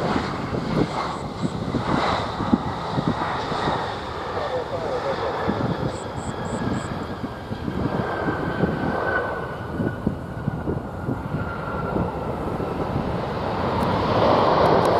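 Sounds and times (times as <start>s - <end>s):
jet engines rushing and whining: 0.0s - 14.9s.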